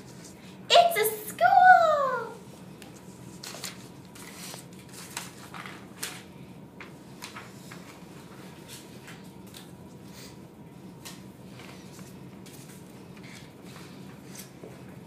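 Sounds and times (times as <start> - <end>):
faint steady hum: 0.0 - 15.0
paper sliding and shuffling: 3.0 - 9.3.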